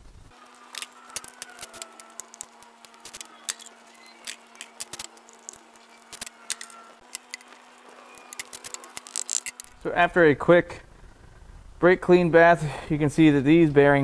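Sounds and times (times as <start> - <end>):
low hum: 0.0 - 13.4
hand ratchet clicking: 8.2 - 9.8.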